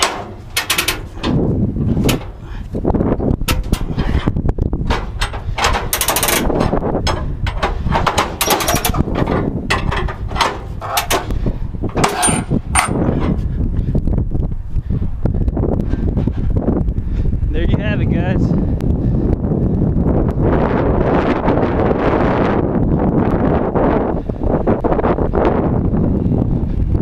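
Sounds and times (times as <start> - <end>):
metal clanks and rattles: 0.0 - 13.5
steady low rumble: 0.0 - 27.0.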